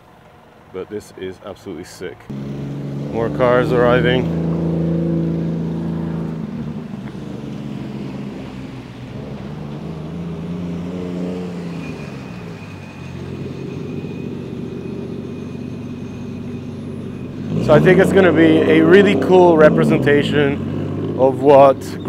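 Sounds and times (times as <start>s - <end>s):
cars with loud exhausts passing: 0.0s - 22.0s.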